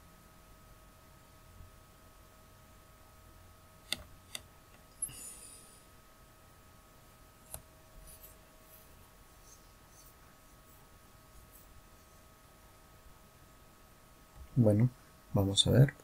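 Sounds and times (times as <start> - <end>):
faint electrical whine: 0.0 - 16.0
computer mouse clicks: 3.9 - 4.8.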